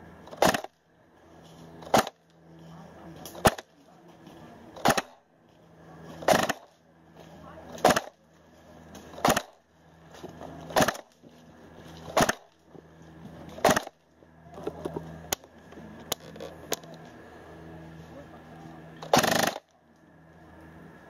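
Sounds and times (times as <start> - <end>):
airsoft gun shots: 0.3 - 0.7, 1.9 - 2.2, 3.4 - 3.7, 4.8 - 5.2, 6.2 - 6.7, 7.8 - 8.2, 9.2 - 9.6, 10.8 - 11.1, 12.2 - 12.5, 13.6 - 14.0, 19.0 - 19.7.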